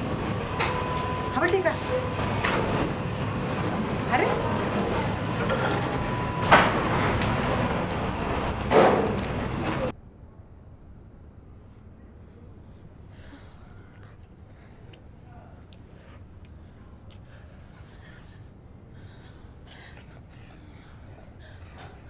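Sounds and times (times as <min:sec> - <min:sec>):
low night-time hum: 0:00.0 - 0:22.0
cricket chirping: 0:09.9 - 0:22.0.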